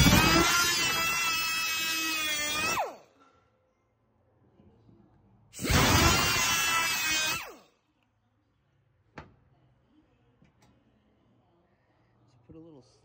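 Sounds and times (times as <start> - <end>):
abrasive cutoff wheel whining: 0.0 - 3.0, 5.6 - 7.6.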